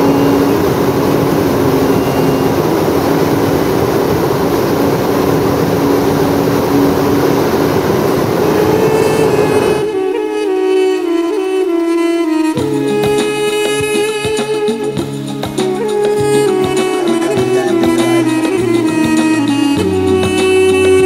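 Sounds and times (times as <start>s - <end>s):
propane burner roaring: 0.0s - 10.1s.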